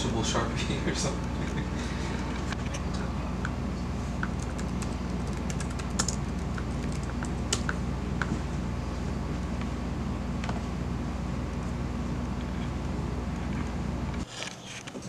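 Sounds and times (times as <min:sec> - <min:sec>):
steady low hum: 0:00.0 - 0:15.0
laptop keyboard typing: 0:04.2 - 0:08.3.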